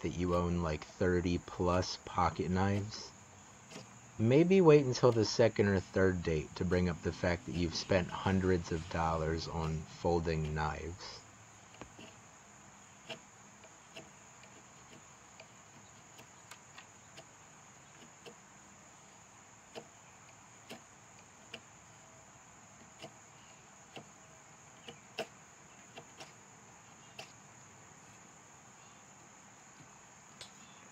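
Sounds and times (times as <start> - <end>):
insects droning: 0.0 - 30.9
knife carving wooden stick: 0.1 - 18.5, 19.7 - 21.8, 22.8 - 26.4, 27.0 - 27.4.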